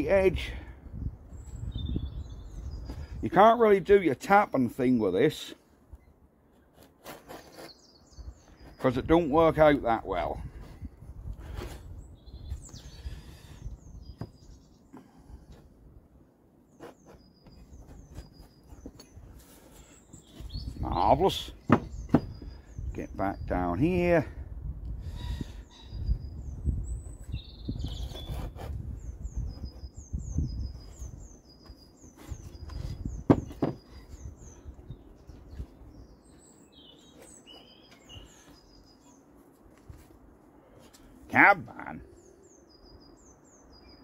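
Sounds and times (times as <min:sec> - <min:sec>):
birds chirping: 0:00.0 - 0:24.3, 0:25.0 - 0:44.0
sharp knocks on bench: 0:21.7 - 0:22.3, 0:33.3 - 0:33.8.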